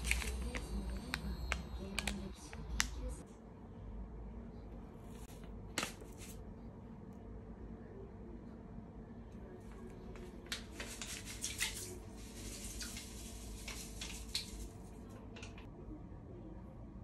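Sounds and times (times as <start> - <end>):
paper packet crinkling: 0.0 - 2.9.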